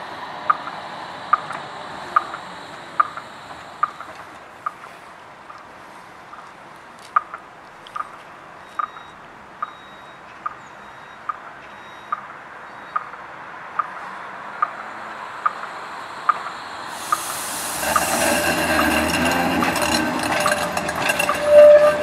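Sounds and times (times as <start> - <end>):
tram running: 0.0 - 22.0
warning beep: 8.6 - 13.2.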